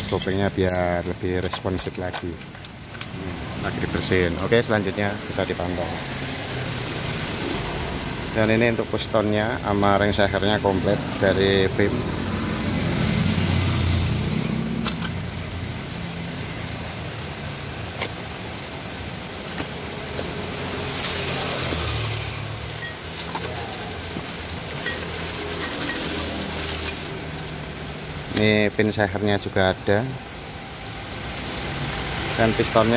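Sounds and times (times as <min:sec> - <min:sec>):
plastic bags rustling: 0:17.8 - 0:28.6.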